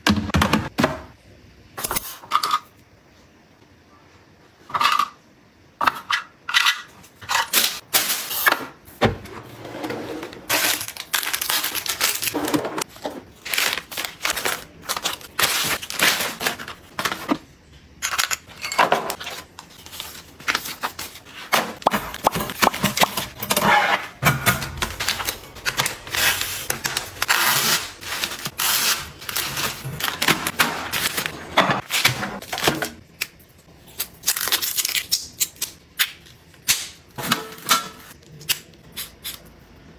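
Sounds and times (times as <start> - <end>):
plastic and cardboard rustling: 8.0 - 17.6, 18.8 - 33.0.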